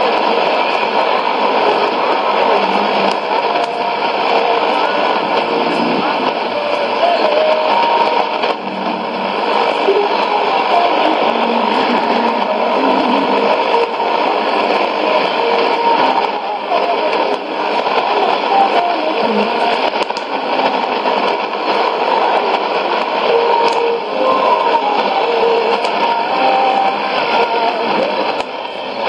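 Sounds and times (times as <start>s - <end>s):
faint radio broadcast: 0.0s - 29.0s
loud static hiss: 0.0s - 29.0s.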